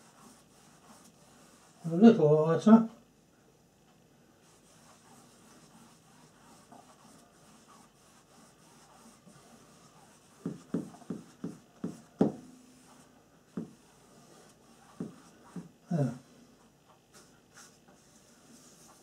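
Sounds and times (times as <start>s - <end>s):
paintbrush bristles rubbing canvas: 0.0s - 2.0s, 4.4s - 15.7s, 17.2s - 19.0s.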